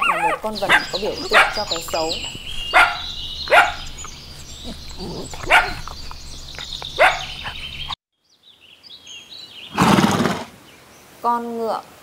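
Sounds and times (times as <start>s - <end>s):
dog barking: 0.0s - 7.7s.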